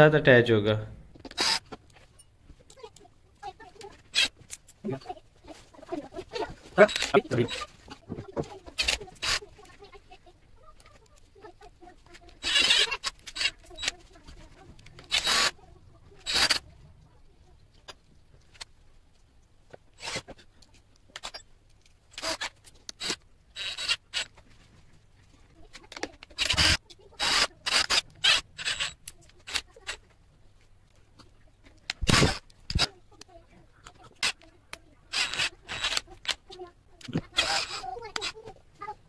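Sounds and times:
cordless drill bursts: 1.3s - 1.7s, 12.4s - 13.5s, 15.1s - 15.5s, 16.3s - 16.6s, 20.0s - 20.2s, 26.4s - 29.0s, 35.1s - 36.0s, 37.4s - 37.8s.

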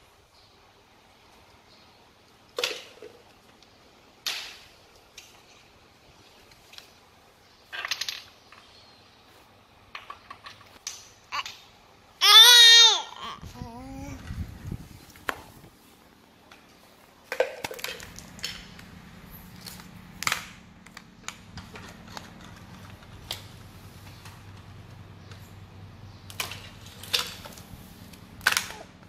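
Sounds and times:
faint steady hum: 0.0s - 29.0s
plastic toys clacking together: 7.7s - 8.7s, 28.4s - 28.9s.

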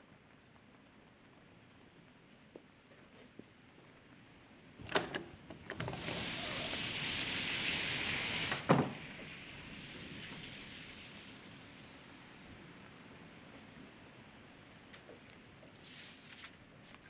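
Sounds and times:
door latch clicking: 4.8s - 6.0s
rain hissing: 5.8s - 16.4s.

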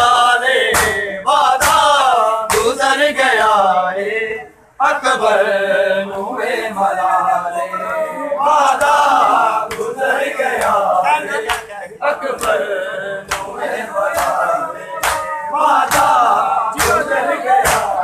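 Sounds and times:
men chanting together: 0.0s - 18.0s
hands slapping bare chests: 1.6s - 1.9s, 13.3s - 13.6s, 15.0s - 15.3s, 15.9s - 16.2s, 16.8s - 18.0s.

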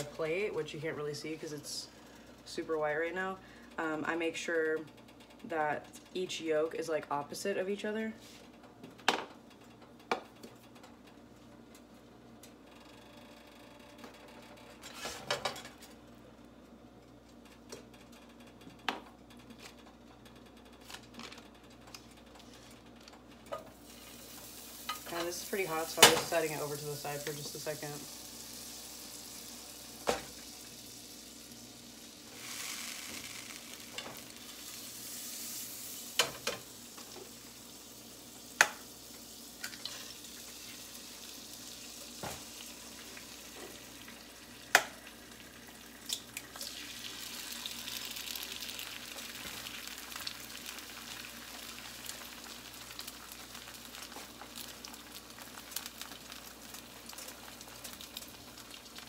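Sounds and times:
eggs sizzling in oil: 22.7s - 59.0s.

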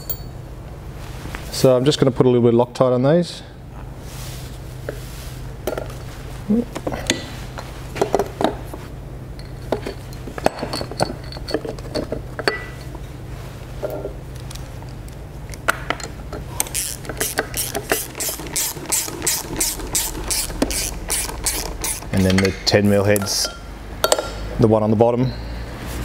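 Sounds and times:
metal clinks and knocks: 0.0s - 0.4s, 9.3s - 13.0s
socket ratchet clicking: 16.6s - 22.2s.

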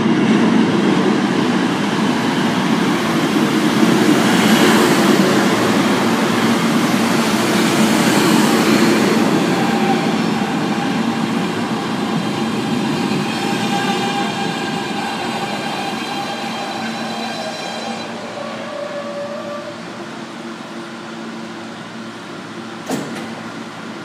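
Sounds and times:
subway train rumble: 0.0s - 24.0s.

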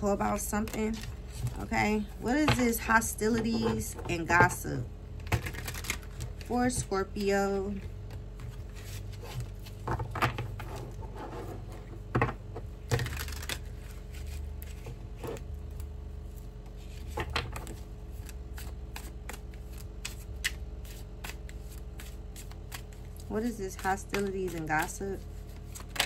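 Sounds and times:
low room hum: 0.0s - 26.0s
cards being shuffled by hand: 5.3s - 11.9s, 12.8s - 26.0s.

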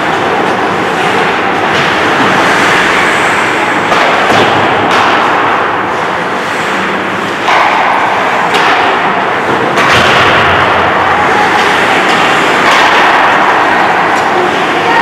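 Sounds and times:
hockey sticks and puck cracking: 0.0s - 15.0s
steady rushing noise: 0.0s - 15.0s.

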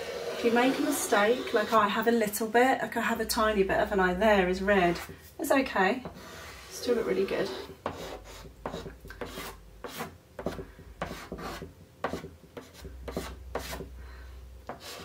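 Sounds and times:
chalk pastel scratching on paper: 6.2s - 13.8s.

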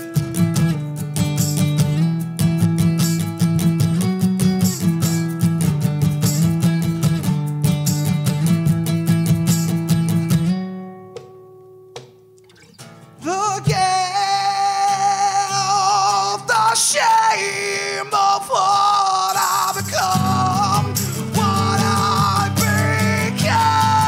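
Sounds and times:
strummed acoustic guitar: 0.0s - 24.0s
man singing rock: 13.2s - 24.0s.

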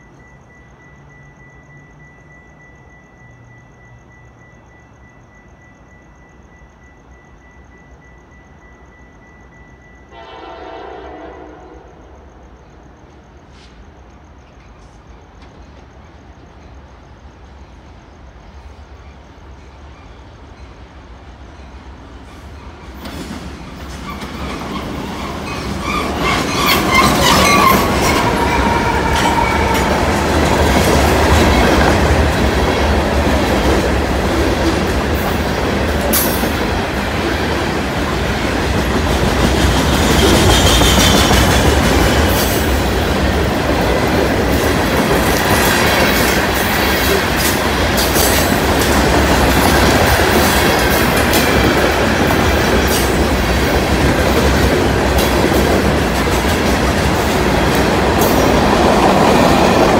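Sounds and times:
diesel locomotives passing: 0.0s - 59.9s
train wheels rumbling on rails: 0.0s - 59.9s
metallic wheel squeal: 24.0s - 31.3s.

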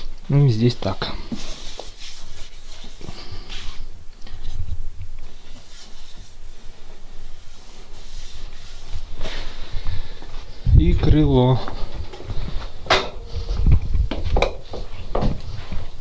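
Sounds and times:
hand rubbing on metal: 1.2s - 9.9s.

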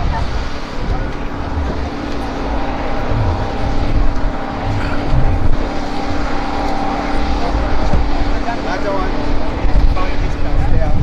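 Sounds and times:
engine drone with whine: 0.0s - 11.0s
irregular low rumble: 0.0s - 11.0s.

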